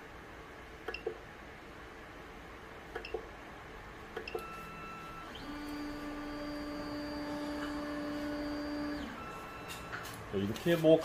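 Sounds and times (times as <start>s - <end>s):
faint high motor tone: 4.2s - 10.7s
stepper motors whining: 4.4s - 10.2s.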